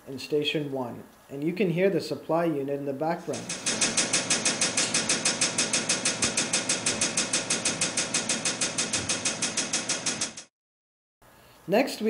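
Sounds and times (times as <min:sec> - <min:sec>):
pressure pump pulsing: 0:03.3 - 0:10.5.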